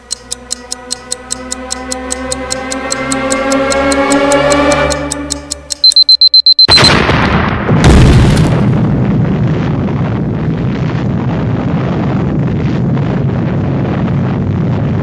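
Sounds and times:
rapid high electronic beeping: 0.0s - 6.9s
explosion sound effect: 6.7s - 15.0s
rumble of blast: 6.7s - 15.0s.

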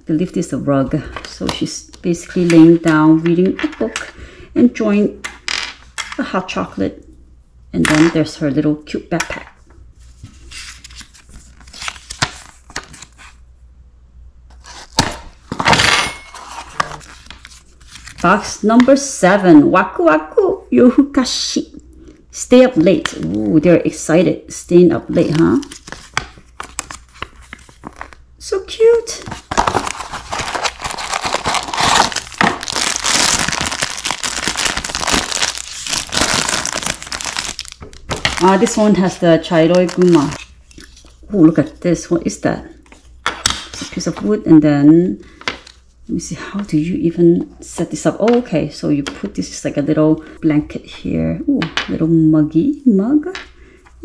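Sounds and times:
cardboard tearing scrape: 14.5s - 15.2s, 29.4s - 37.8s
plastic bag crinkling: 29.2s - 41.2s.

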